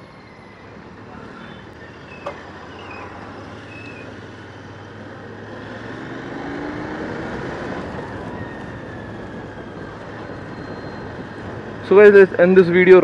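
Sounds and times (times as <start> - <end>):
wind and road noise: 0.0 - 13.0.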